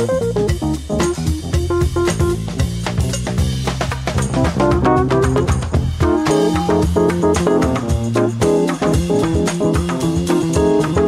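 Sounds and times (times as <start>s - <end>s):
piano trio playing jazz blues: 0.0s - 11.0s.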